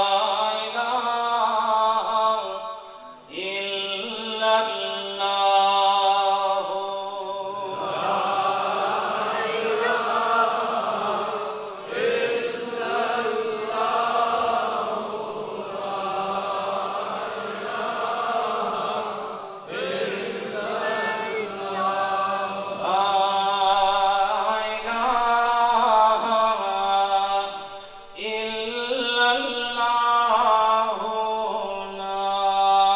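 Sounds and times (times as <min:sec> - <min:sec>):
voices chanting melodically: 0:07.5 - 0:24.4.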